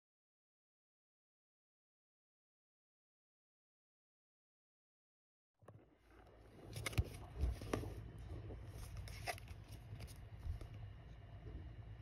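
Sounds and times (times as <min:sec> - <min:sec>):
plastic wrapper crinkling: 0:08.7 - 0:10.2.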